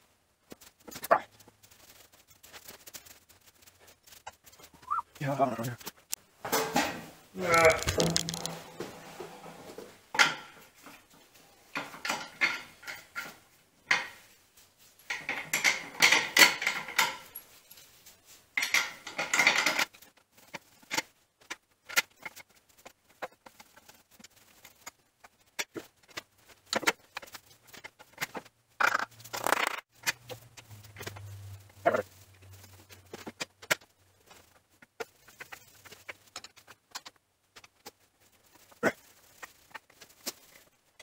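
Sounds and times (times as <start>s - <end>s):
metal hand tools clinking and rattling: 15.0s - 18.0s, 18.6s - 20.1s.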